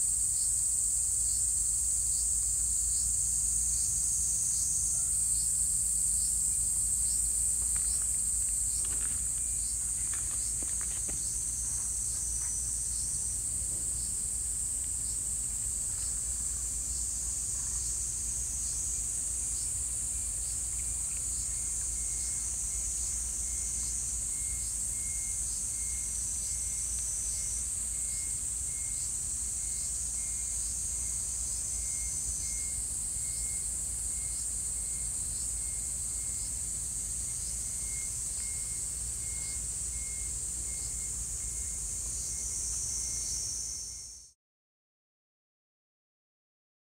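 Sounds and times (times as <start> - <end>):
insect rapid pulsed chirping: 0.0 - 44.3
high-pitched insect chorus: 0.0 - 44.4
faint rustles: 7.5 - 14.9.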